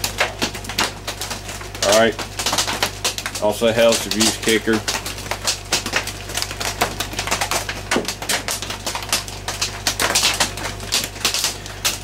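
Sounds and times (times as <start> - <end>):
rain drumming on a tin roof: 0.0 - 12.0
steady low hum: 0.0 - 12.0.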